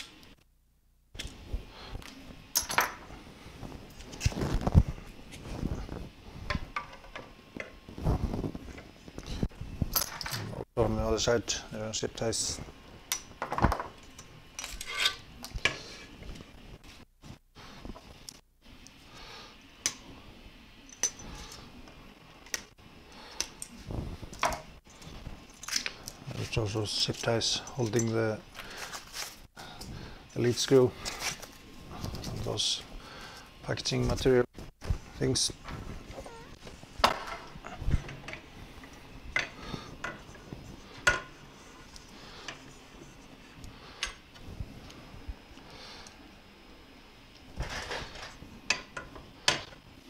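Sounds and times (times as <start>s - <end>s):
handling noise of tools: 1.2s - 10.7s, 12.5s - 18.4s, 20.8s - 22.7s, 23.3s - 32.8s, 47.4s - 49.9s
rustling handling noise: 23.7s - 29.5s.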